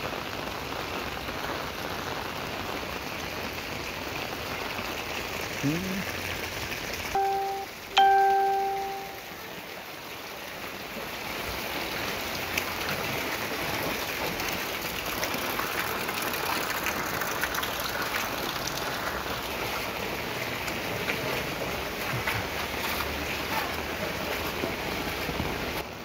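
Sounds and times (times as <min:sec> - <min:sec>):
rain pattering on water: 0:00.0 - 0:26.0
loud ringing tone: 0:07.2 - 0:09.3.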